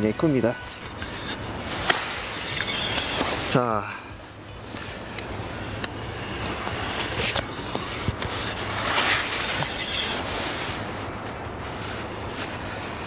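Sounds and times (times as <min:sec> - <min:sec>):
suction pump hissing: 0:02.2 - 0:03.5.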